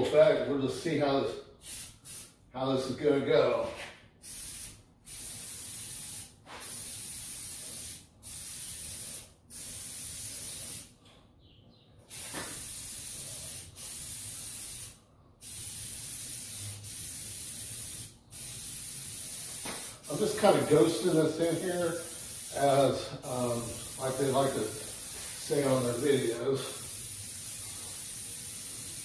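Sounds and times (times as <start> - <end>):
spray paint hissing bursts: 1.6 - 2.4, 4.2 - 10.9, 12.1 - 29.0.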